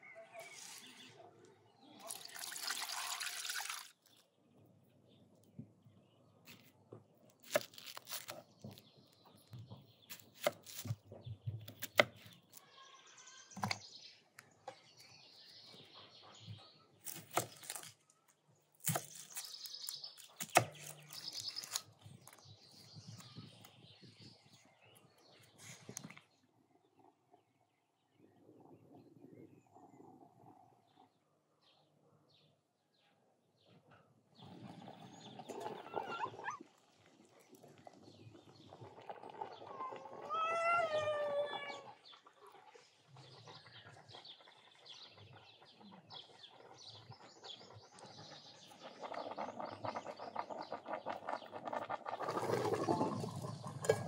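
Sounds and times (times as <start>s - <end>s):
birds chirping: 7.5s - 54.0s
animal's loud wavering call: 35.6s - 36.6s, 39.7s - 42.0s.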